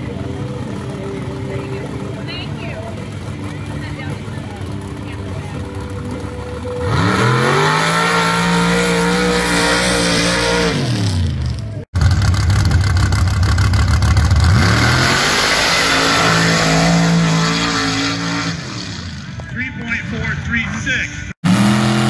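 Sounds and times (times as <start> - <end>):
engine rumbling loudly: 0.0 - 20.6
engine revving at full throttle: 3.2 - 19.2, 21.4 - 22.0.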